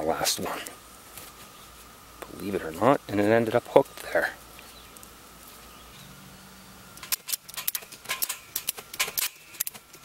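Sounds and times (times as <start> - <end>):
metallic clicks and clinks: 7.0 - 10.0.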